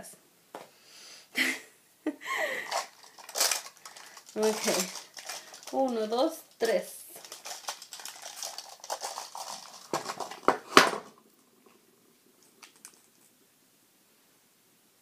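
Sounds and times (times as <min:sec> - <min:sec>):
plastic tubes clattering: 0:02.6 - 0:11.8.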